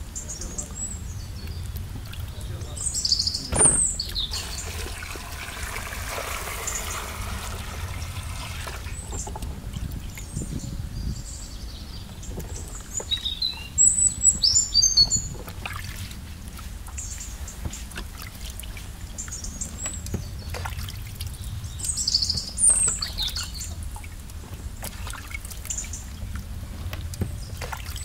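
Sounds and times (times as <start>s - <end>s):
bird chirping: 0.0s - 5.0s, 8.9s - 15.4s, 21.2s - 23.8s
water splashing: 0.5s - 10.5s, 14.2s - 28.0s
water pouring into metal pot: 4.3s - 9.3s.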